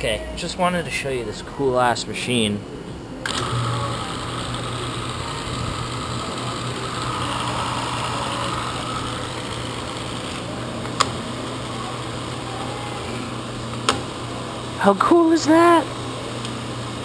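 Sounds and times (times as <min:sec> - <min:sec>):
drill press motor humming: 0:03.2 - 0:14.8.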